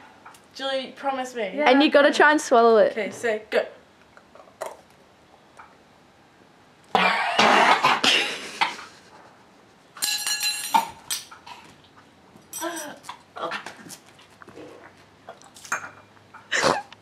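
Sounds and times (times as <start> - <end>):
strained gagging cough: 6.9 - 8.9, 16.5 - 16.9
people coughing and sputtering: 6.9 - 9.1, 16.5 - 16.9.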